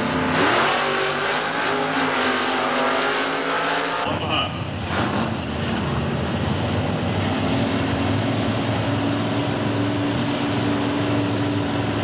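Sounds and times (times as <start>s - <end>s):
drag car engine running hard: 4.7s - 12.0s.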